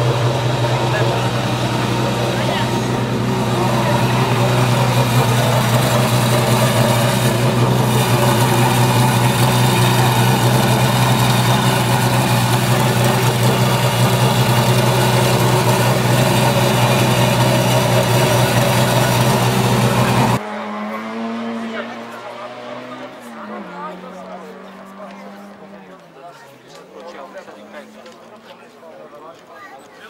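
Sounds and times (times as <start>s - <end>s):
race car engine idling: 0.0s - 20.4s.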